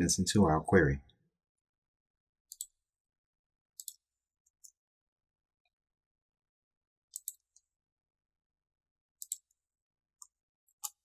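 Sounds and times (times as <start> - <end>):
faint computer mouse clicks: 7.1 - 7.6, 9.2 - 9.5.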